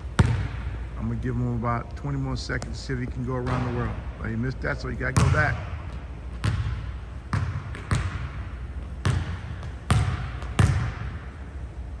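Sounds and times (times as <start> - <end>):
basketball bouncing on gym floor: 0.0 - 0.9, 2.6 - 4.0, 5.0 - 11.4.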